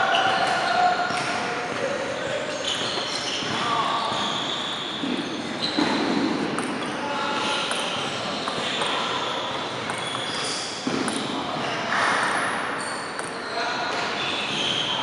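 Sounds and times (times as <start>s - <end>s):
echoing hall background noise: 0.0s - 15.0s
table tennis ball bouncing: 6.5s - 6.8s, 9.8s - 11.3s.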